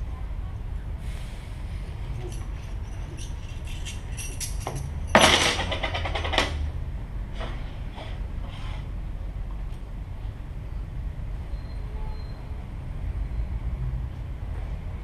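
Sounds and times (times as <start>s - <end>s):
loud dense rattle: 2.1s - 6.7s.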